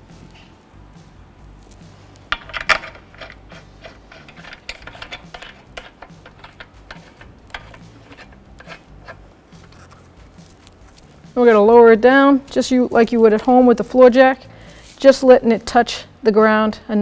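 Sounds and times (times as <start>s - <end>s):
lug nuts clicking and rattling: 2.3s - 11.1s
metal clatter: 2.3s - 13.9s.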